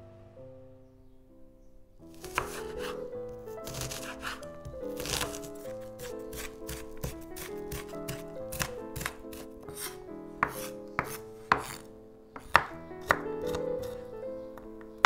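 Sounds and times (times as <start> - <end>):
soft background music: 0.0 - 15.0
knife chopping on wooden board: 2.2 - 3.0, 3.6 - 14.0.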